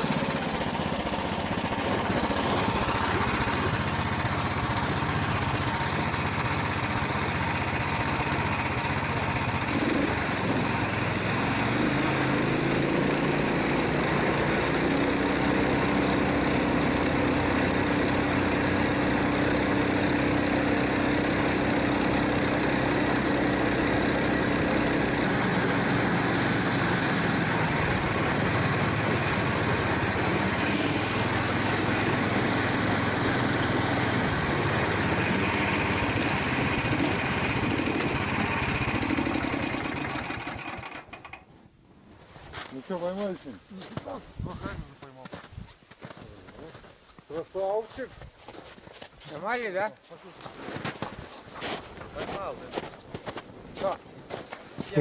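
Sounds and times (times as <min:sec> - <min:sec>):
small single-cylinder engine running: 0:00.0 - 0:41.5.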